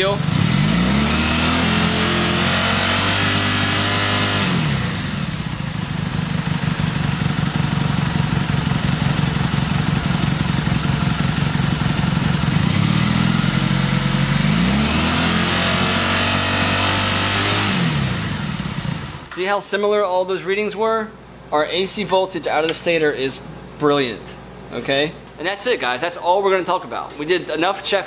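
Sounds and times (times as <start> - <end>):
motorcycle engine revving and idling: 0.0 - 19.3.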